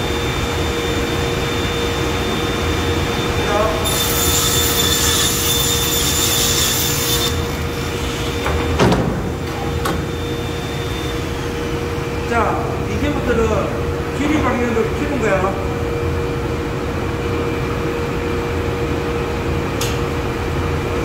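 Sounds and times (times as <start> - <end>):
panel saw motor whine: 0.0 - 8.7, 9.4 - 12.1
saw blade cutting plywood: 3.8 - 8.4.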